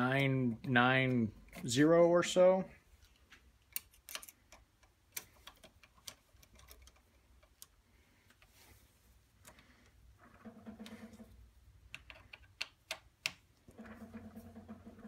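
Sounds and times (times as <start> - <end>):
hex key metallic clicks: 3.6 - 8.4.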